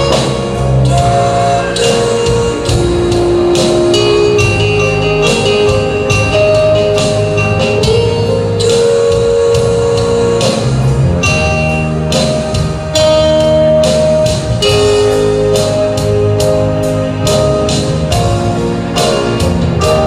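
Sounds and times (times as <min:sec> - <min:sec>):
drum and cymbal beat: 0:00.0 - 0:20.0
keyboard chords: 0:00.0 - 0:20.0.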